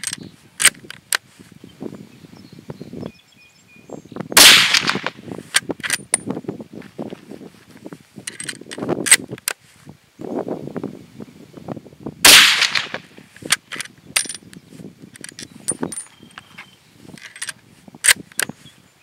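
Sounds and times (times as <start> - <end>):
rifle shot: 4.4 - 5.2, 12.2 - 13.0.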